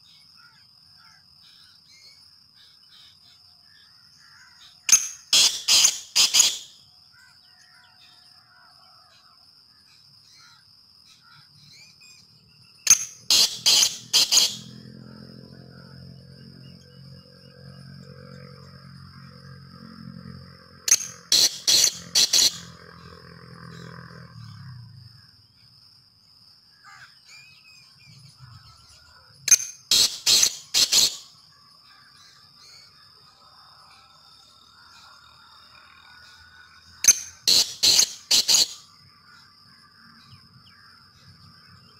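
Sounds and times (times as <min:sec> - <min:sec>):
francolin calling: 0:00.0 - 0:08.2, 0:10.3 - 0:14.8, 0:20.9 - 0:22.8, 0:26.9 - 0:33.1, 0:36.2 - 0:39.5
francolin calling harsh notes: 0:04.9 - 0:06.8, 0:12.9 - 0:14.8, 0:20.9 - 0:22.7, 0:37.1 - 0:38.9.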